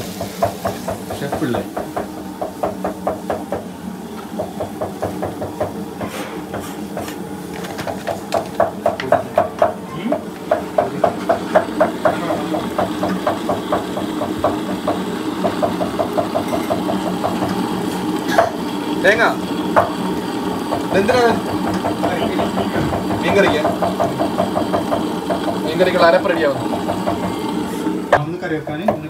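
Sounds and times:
mixer grinder running: 0:00.0 - 0:29.0
fast even knocking: 0:20.6 - 0:25.6, 0:26.6 - 0:27.5.

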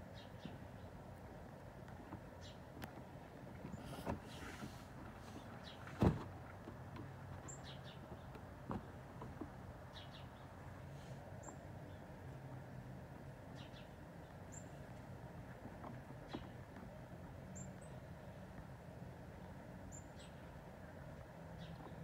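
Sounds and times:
thump: 0:06.0 - 0:06.3.

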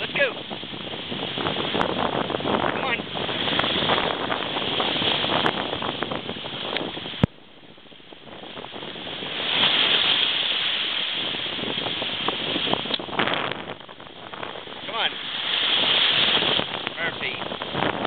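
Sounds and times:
ocean surf breaking: 0:00.0 - 0:18.0.

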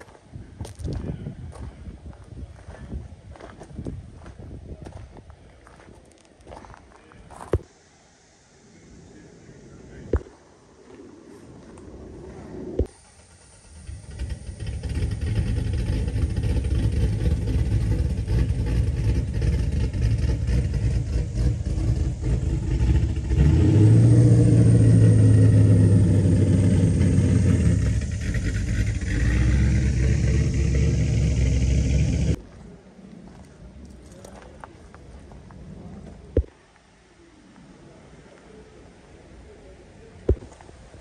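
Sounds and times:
car engine running: 0:12.8 - 0:32.4.

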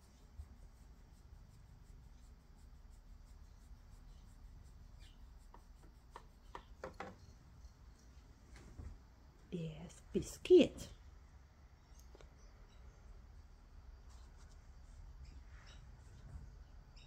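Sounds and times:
scratchy strokes: 0:00.0 - 0:08.1, 0:14.0 - 0:16.3
hand rubbing cat fur: 0:00.0 - 0:09.0, 0:14.0 - 0:16.6.

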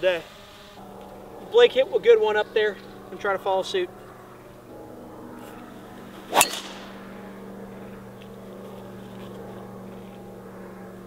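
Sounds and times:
steady low hum: 0:00.0 - 0:11.0
golf club striking ball: 0:05.4 - 0:08.4.

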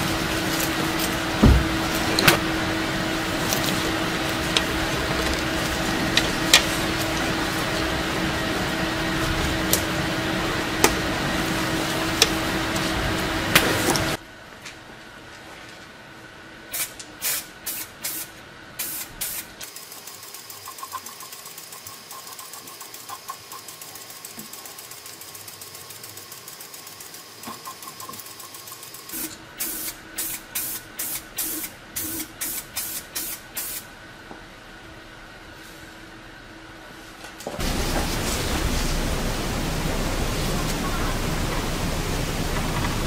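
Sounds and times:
spray paint hissing: 0:16.7 - 0:33.9.

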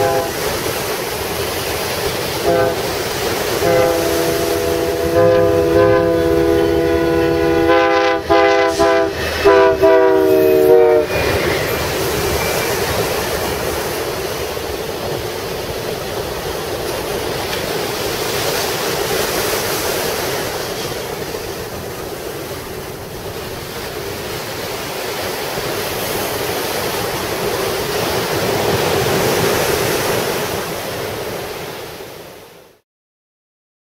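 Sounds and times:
ocean surf breaking on sand: 0:00.0 - 0:32.6.

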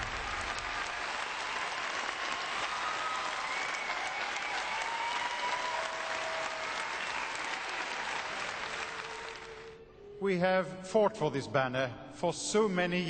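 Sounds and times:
audience applauding: 0:00.0 - 0:09.8
crowd cheering: 0:00.0 - 0:09.8.

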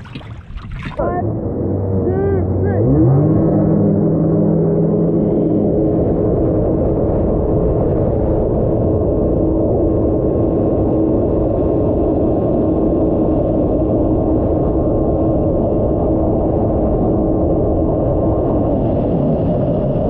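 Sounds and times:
rushing water: 0:00.0 - 0:01.2
second jet ski engine: 0:00.0 - 0:06.2
wind: 0:00.0 - 0:20.0
jet ski engine drone: 0:00.8 - 0:20.0.

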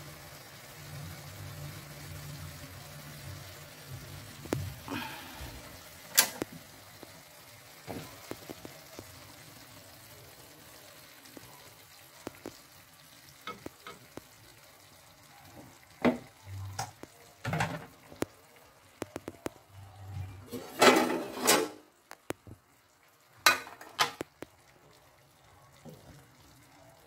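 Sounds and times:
chicken sizzling in sauce: 0:00.0 - 0:27.0
wooden spatula scraping a pan: 0:20.4 - 0:21.8.

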